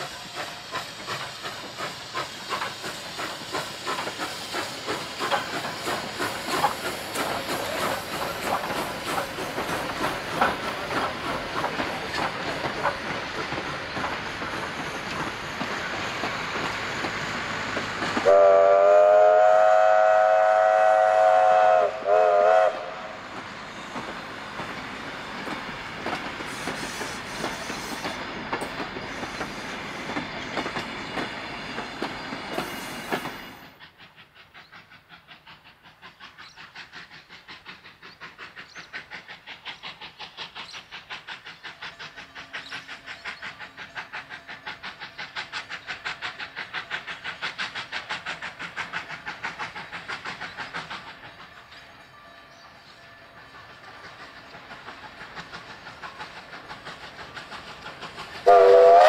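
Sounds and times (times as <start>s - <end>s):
steam locomotive exhaust beats: 0.0s - 59.0s
steam locomotive whistle: 18.2s - 23.3s, 58.4s - 59.0s.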